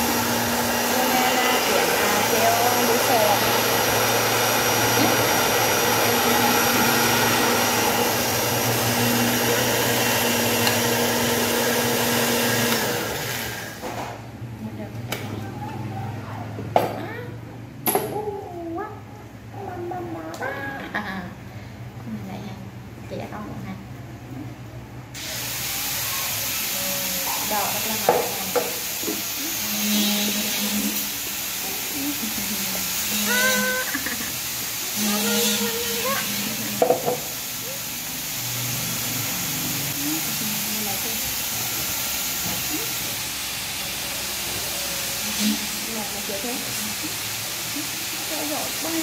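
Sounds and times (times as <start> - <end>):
electric blender running: 0.0 - 14.2, 25.2 - 49.0.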